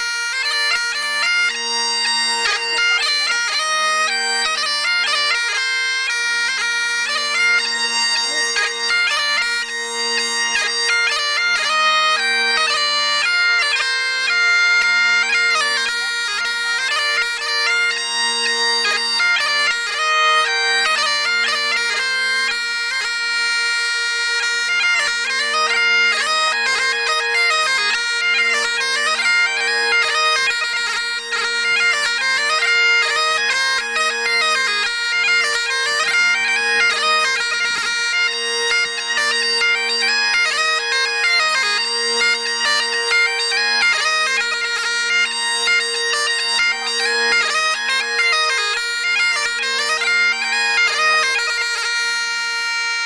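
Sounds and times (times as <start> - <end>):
bagpipe chanter tune: 0.0 - 53.0
bagpipe drones: 0.0 - 53.0.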